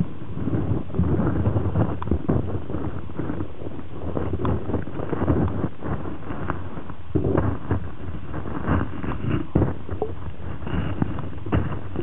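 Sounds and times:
underwater water rumble: 0:00.0 - 0:12.0
underwater knocks: 0:08.4 - 0:12.0.

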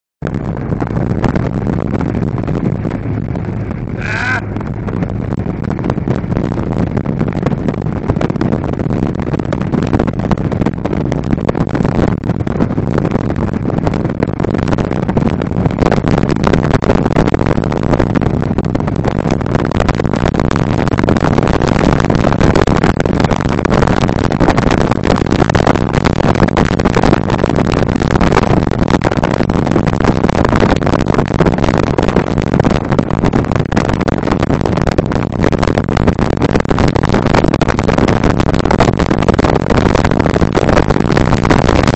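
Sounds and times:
wind on microphone: 0:00.2 - 0:41.9
speedboat engines running: 0:00.3 - 0:21.3
water rushing: 0:02.9 - 0:05.6
rising whoop: 0:04.0 - 0:04.6.

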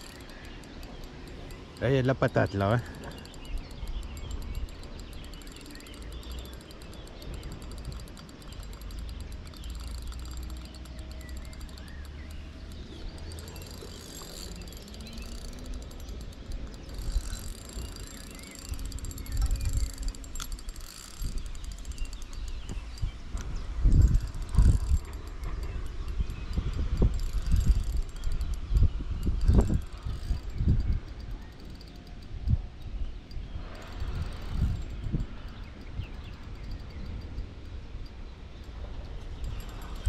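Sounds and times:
fishing reel ticking whirr: 0:00.0 - 0:40.0
wind rumble on microphone: 0:13.0 - 0:40.0.

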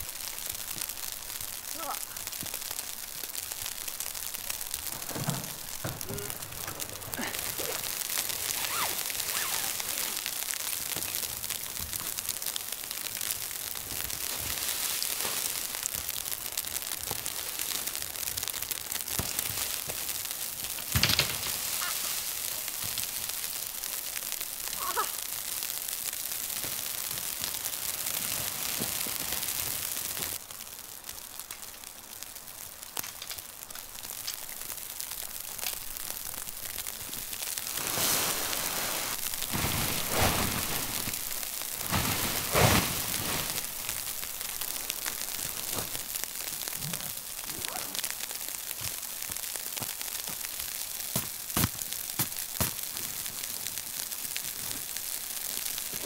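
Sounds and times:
steady hiss: 0:00.0 - 0:56.0
tent fabric rustling: 0:04.9 - 0:10.5, 0:37.6 - 0:44.0.

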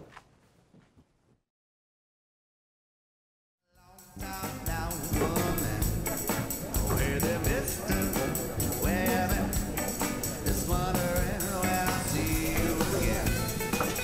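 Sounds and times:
person singing: 0:03.7 - 0:14.0
drum beat: 0:04.2 - 0:14.0
electric guitar: 0:04.2 - 0:14.0.

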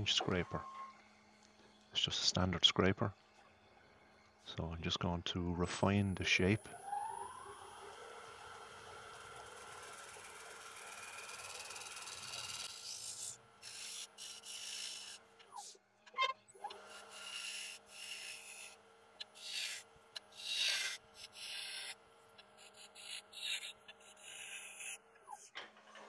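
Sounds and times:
scraper cutting wood on a lathe: 0:09.2 - 0:15.4, 0:16.7 - 0:25.0.

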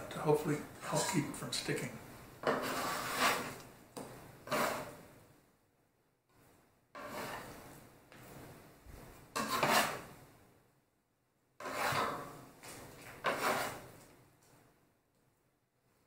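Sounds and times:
metal scraper on wooden board: 0:02.4 - 0:03.6, 0:04.4 - 0:05.0, 0:07.0 - 0:07.6, 0:09.4 - 0:10.1, 0:11.6 - 0:12.4, 0:13.1 - 0:13.9.

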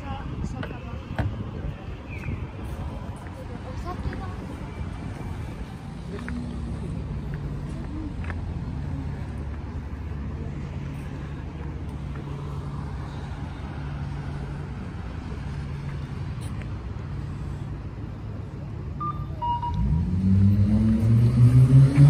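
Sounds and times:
street traffic hum: 0:00.0 - 0:22.0
vehicle engine accelerating: 0:19.5 - 0:22.0.

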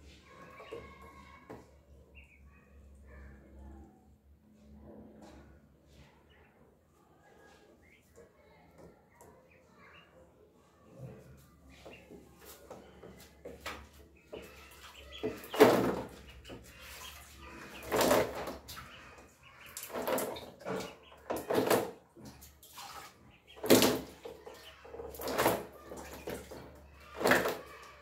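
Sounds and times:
ducklings splashing in water: 0:00.0 - 0:03.7, 0:05.2 - 0:06.6, 0:07.3 - 0:28.0
ducklings peeping: 0:00.4 - 0:01.3, 0:02.2 - 0:02.5, 0:09.5 - 0:10.2, 0:13.8 - 0:21.8, 0:23.3 - 0:27.6.

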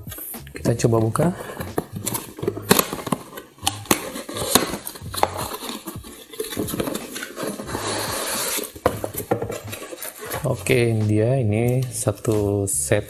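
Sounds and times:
cardboard scraping on cardboard: 0:01.0 - 0:11.0
cardboard knocks and clicks: 0:01.5 - 0:10.5.

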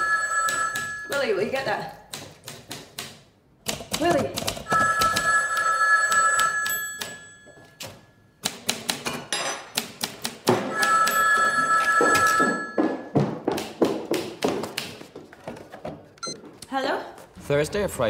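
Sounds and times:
telephone ringing: 0:00.0 - 0:01.7, 0:04.7 - 0:08.3, 0:10.6 - 0:13.2.

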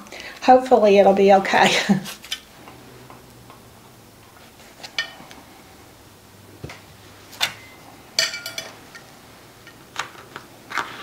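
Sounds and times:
metal utensils clinking on foil pan: 0:07.4 - 0:09.1.

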